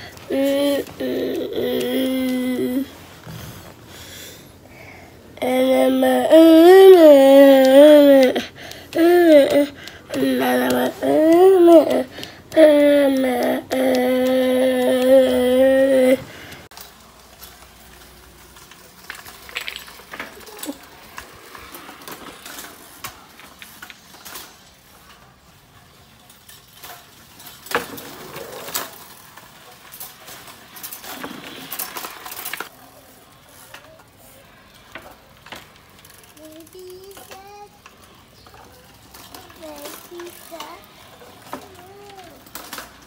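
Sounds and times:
bicycle rattling on concrete: 5.4 - 43.0.

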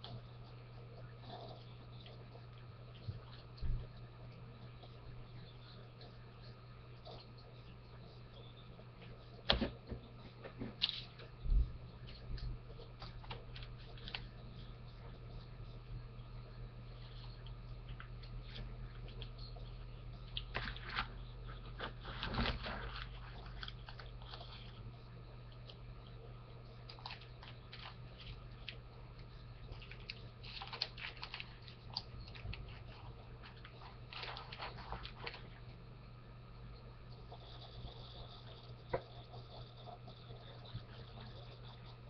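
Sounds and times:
steady low hum: 0.0 - 42.0
packaging rustling: 29.7 - 35.5.

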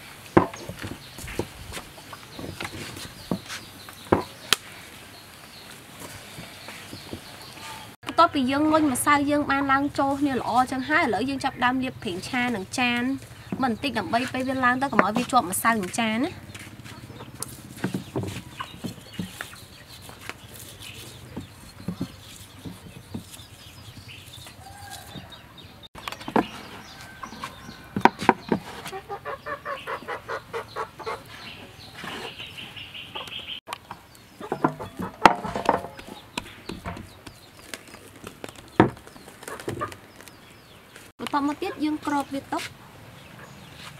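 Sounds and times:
chickens clucking: 16.5 - 37.2, 39.0 - 40.4, 41.4 - 43.9.

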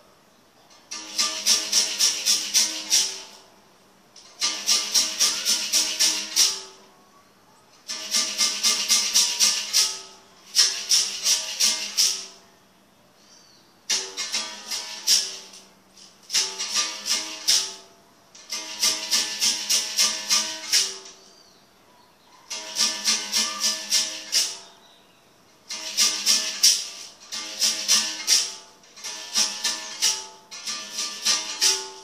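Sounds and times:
shaker rattle: 0.9 - 3.5, 4.2 - 6.8, 7.8 - 12.4, 13.9 - 21.2, 22.5 - 24.7, 25.6 - 32.0.

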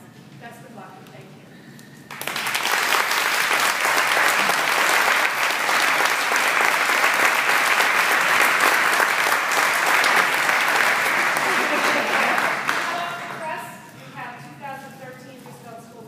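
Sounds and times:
audience applauding: 2.1 - 13.6.

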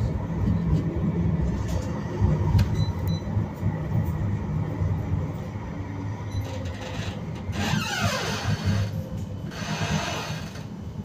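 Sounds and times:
tram wheels rumbling on rail: 0.0 - 11.0.

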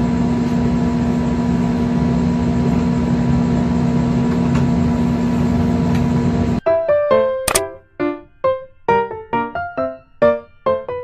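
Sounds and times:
mechanical hum with low drone: 0.0 - 6.6.

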